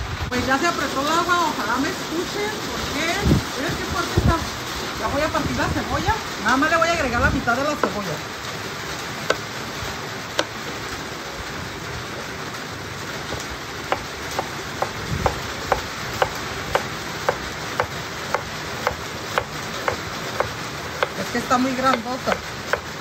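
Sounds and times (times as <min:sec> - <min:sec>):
heavy rain falling: 0:00.0 - 0:23.0
knife slicing onion on wooden board: 0:10.4 - 0:10.6, 0:13.3 - 0:21.2, 0:21.8 - 0:23.0.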